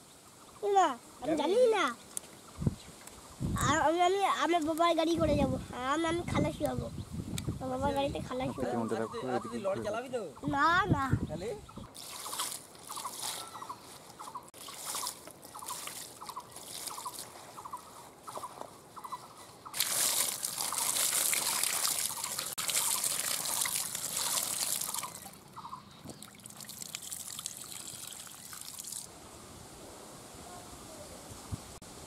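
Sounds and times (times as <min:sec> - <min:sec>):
stream of water pouring: 0:11.9 - 0:13.4, 0:14.6 - 0:17.3, 0:19.8 - 0:25.4, 0:26.1 - 0:29.1
water splashing on wet leaves: 0:11.9 - 0:17.7, 0:19.7 - 0:25.4, 0:26.1 - 0:29.1.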